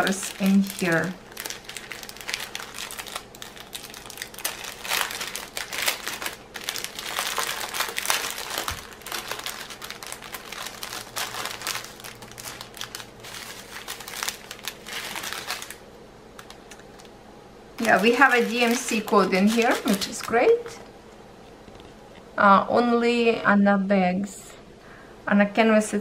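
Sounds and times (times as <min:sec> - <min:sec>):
plastic bags crinkling: 0:00.0 - 0:17.2, 0:17.8 - 0:20.9.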